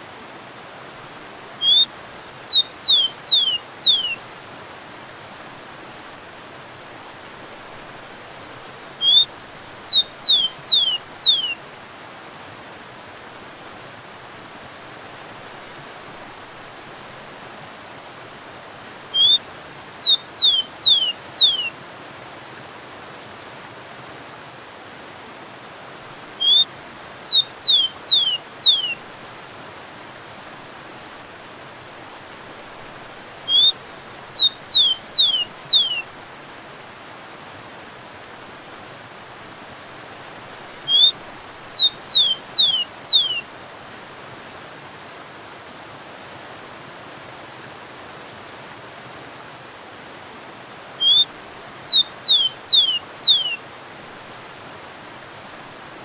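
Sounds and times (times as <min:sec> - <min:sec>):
sparrow singing whistled song: 0:01.6 - 0:04.2, 0:09.0 - 0:11.6, 0:19.2 - 0:21.7, 0:26.4 - 0:29.0, 0:33.5 - 0:36.1, 0:40.9 - 0:43.4, 0:51.0 - 0:53.6.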